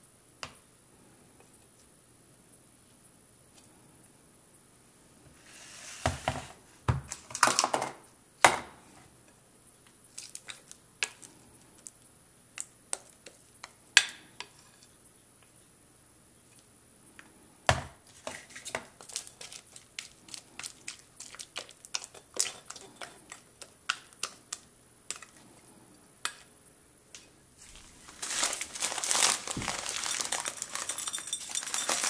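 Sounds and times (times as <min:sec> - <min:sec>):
plastic spoon scraping slime: 0:18.2 - 0:25.5
sticky crackles and knocks: 0:27.7 - 0:32.0.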